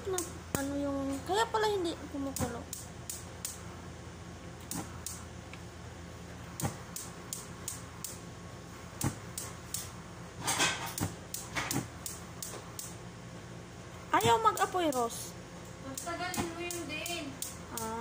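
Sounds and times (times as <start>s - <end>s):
gas stove igniter clicking: 2.3s - 3.6s, 4.6s - 5.6s, 6.6s - 8.2s, 9.0s - 9.9s, 10.9s - 13.0s, 15.9s - 18.0s.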